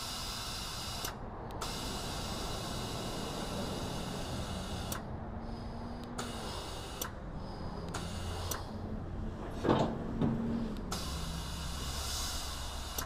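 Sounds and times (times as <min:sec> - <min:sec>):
air hiss: 0:00.0 - 0:08.8, 0:10.6 - 0:13.0
sharp clicks: 0:04.8 - 0:05.1, 0:06.0 - 0:07.2
metal ramp clunk: 0:09.4 - 0:10.6.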